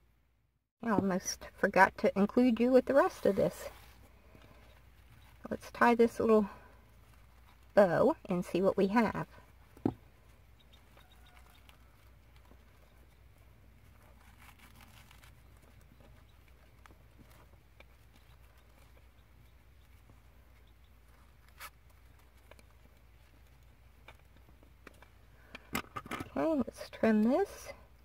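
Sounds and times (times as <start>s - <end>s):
ribbon rustling and ticking: 9.4s - 25.5s.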